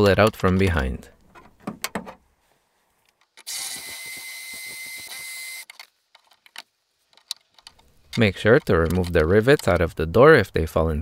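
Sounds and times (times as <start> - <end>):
cordless drill drilling: 3.4 - 5.7.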